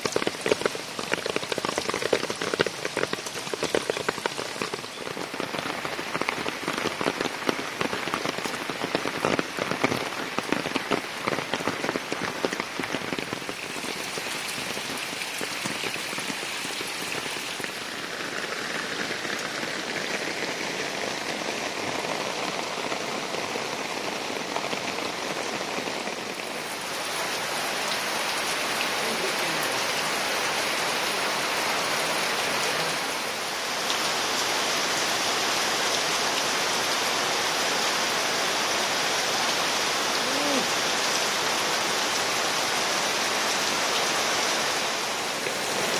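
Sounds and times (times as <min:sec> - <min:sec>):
rain falling: 0:00.0 - 0:45.9.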